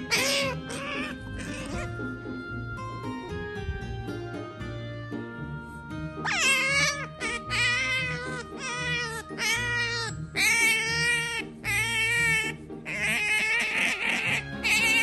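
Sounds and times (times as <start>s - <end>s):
otter squeaky calls: 0.0s - 2.0s, 6.2s - 15.0s.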